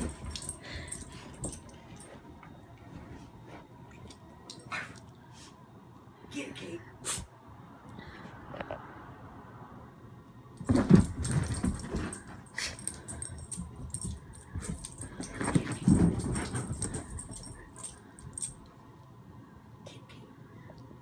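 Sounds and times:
collar jingles and clicks: 0.0s - 3.2s, 10.6s - 18.8s
dogs playing and vocalizing: 10.7s - 18.6s.

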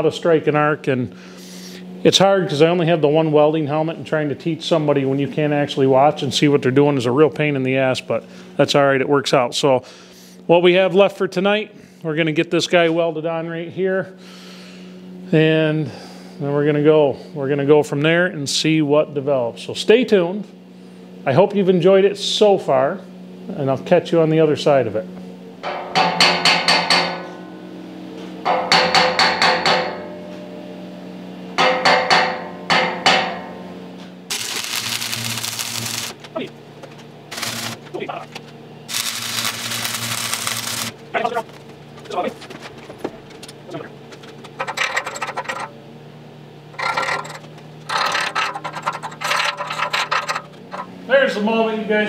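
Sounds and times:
steady low hum: 0.0s - 52.0s
hammer tapping steel plate: 25.6s - 27.4s, 28.5s - 30.2s, 31.6s - 33.6s
steel tool scraping on anvil: 46.8s - 50.9s.

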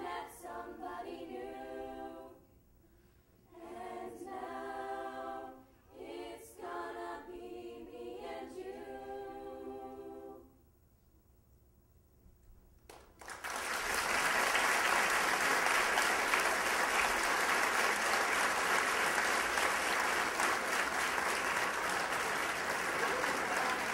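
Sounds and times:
audience applause: 12.9s - 23.9s.

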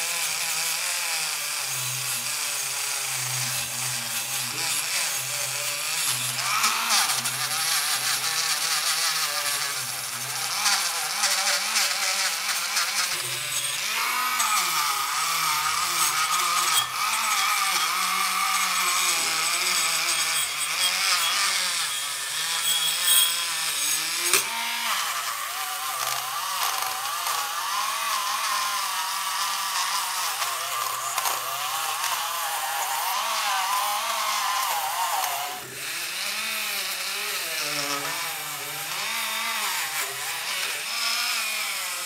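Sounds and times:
rotary tool motor whine: 0.0s - 42.0s
wire brush scratching metal: 3.6s - 24.5s.

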